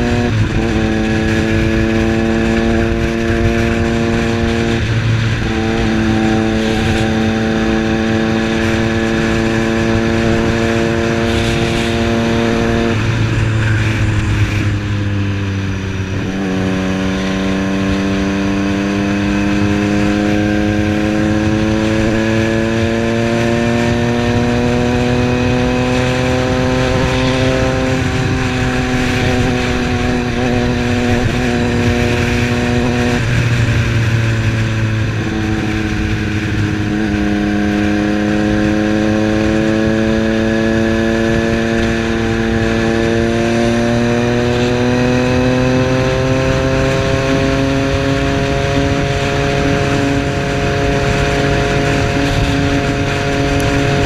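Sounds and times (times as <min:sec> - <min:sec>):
motorcycle engine accelerating: 0:00.0 - 0:54.0
wind and road noise: 0:00.0 - 0:54.0.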